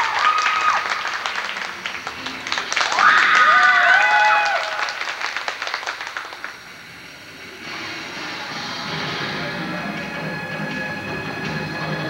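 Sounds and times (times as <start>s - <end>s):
applause: 0.0s - 6.7s.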